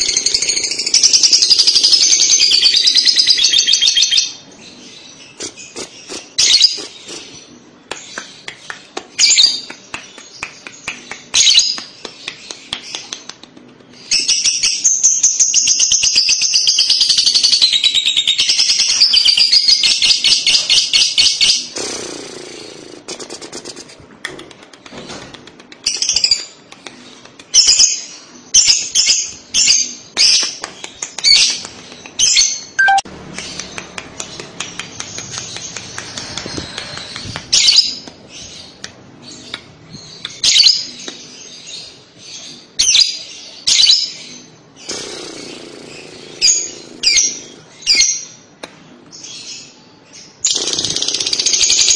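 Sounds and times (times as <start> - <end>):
lovebird sharp chirps: 32.2 - 33.6
lovebird shrill trill: 32.8 - 33.0.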